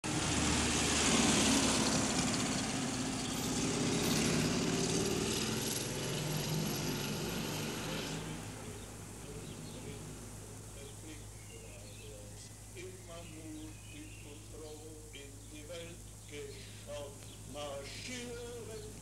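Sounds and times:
passing car engine and tyres: 0.0 - 12.8.

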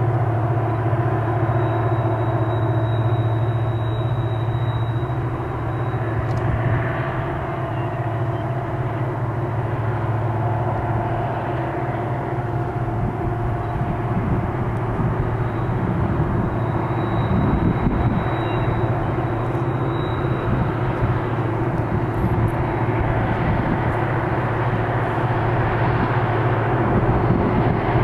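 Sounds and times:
diesel locomotive engines droning: 0.0 - 28.0.

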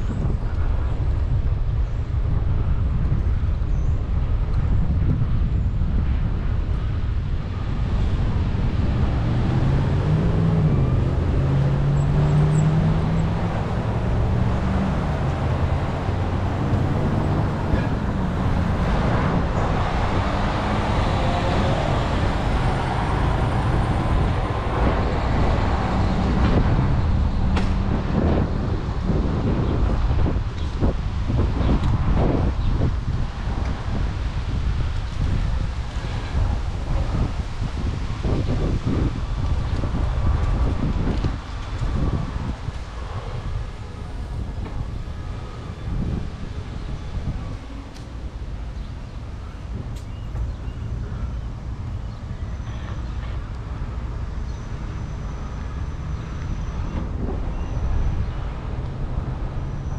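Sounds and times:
street traffic: 0.0 - 59.9
wind rumble on microphone: 0.0 - 59.9
vehicle engine rising and falling: 7.4 - 52.2.

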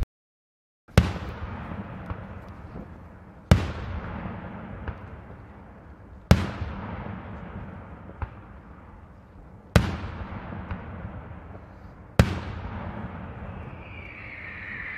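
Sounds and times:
faint firework pops: 0.9 - 5.5.

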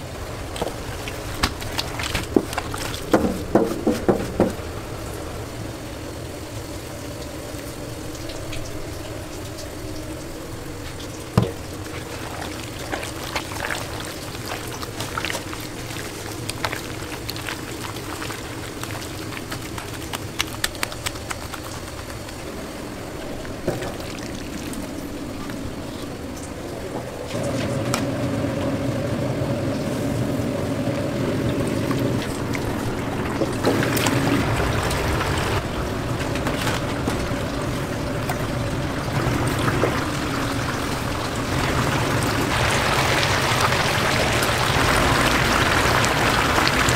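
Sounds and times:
steady background hum: 0.0 - 46.9
hand squelching in wet batter: 11.4 - 22.5.

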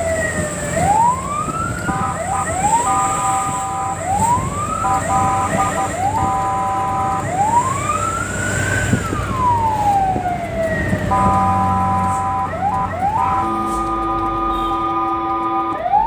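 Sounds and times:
fire truck siren wailing: 0.0 - 16.0
truck engine running: 0.0 - 16.0
multi-note horn tones: 1.9 - 7.3, 11.1 - 16.0.

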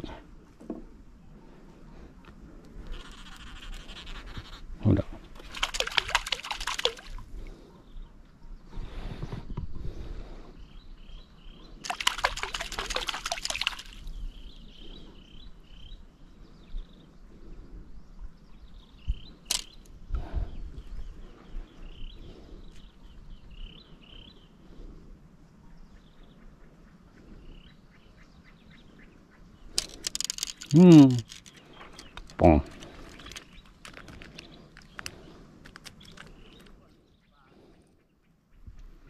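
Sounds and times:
water lapping at a boat: 11.8 - 14.1.

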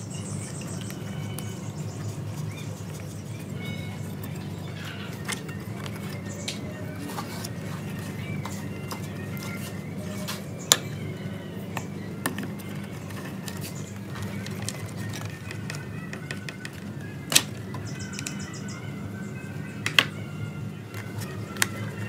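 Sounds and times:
small parts clicking and tapping: 11.7 - 18.6, 19.8 - 20.2.

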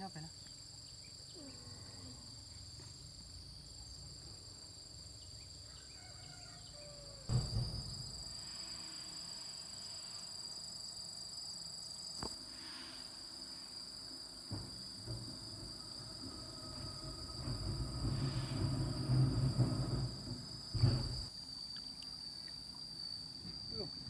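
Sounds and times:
insects droning: 0.0 - 24.0
low thump: 7.3 - 8.4, 14.5 - 21.3.

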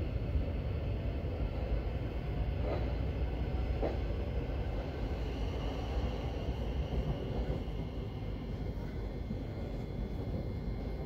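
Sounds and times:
train running rumble: 0.0 - 11.0.

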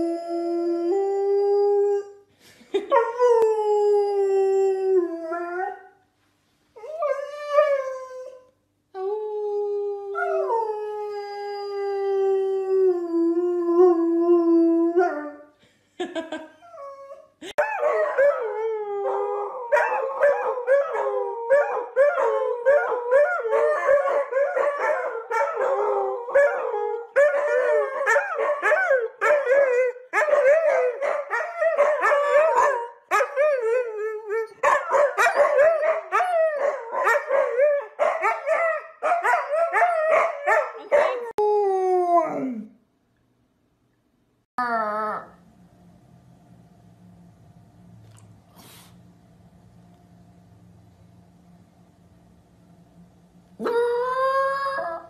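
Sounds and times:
dog howling: 17.7 - 42.7, 53.6 - 55.0.

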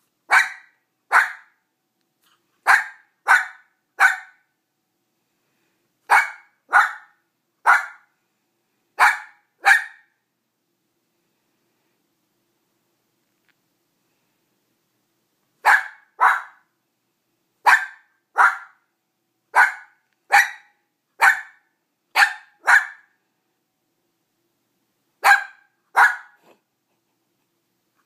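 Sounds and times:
small dog barking: 0.3 - 1.6, 2.6 - 4.5, 6.1 - 8.1, 9.0 - 10.2, 15.6 - 16.7, 17.6 - 18.9, 19.5 - 23.2, 25.2 - 26.6.

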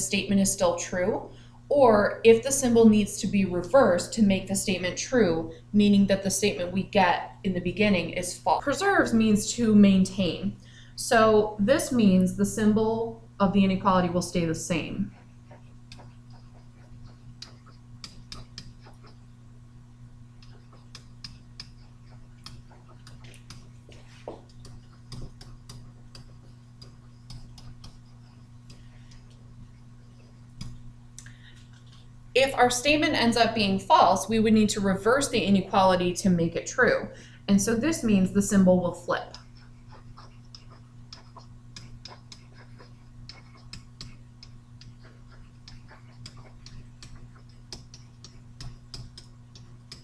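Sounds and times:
low electrical hum: 0.0 - 50.0
stylus tapping on tablet screen: 15.1 - 19.3, 20.4 - 30.9, 39.3 - 50.0.

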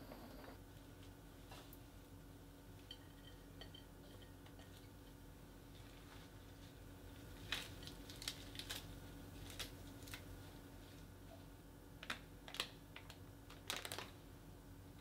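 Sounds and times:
faint steady hum: 0.0 - 15.0
plastic package crinkling: 7.4 - 10.3, 12.0 - 14.2.

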